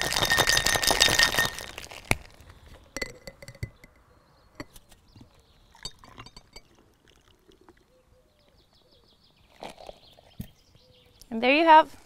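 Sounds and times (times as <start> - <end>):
ice and glass clinking: 0.0 - 2.2, 3.0 - 4.0, 5.8 - 7.8
ice rattling in cocktail shaker: 0.0 - 2.4.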